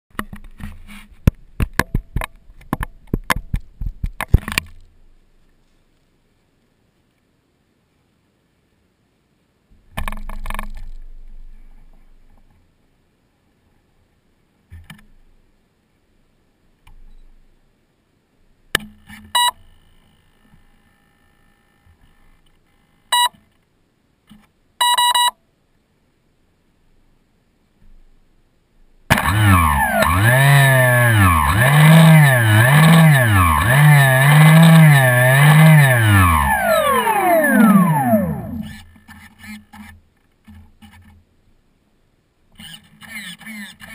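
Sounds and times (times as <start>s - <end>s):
short electronic beep: 24.8s - 25.4s
electric propeller motor whining: 29.1s - 38.8s.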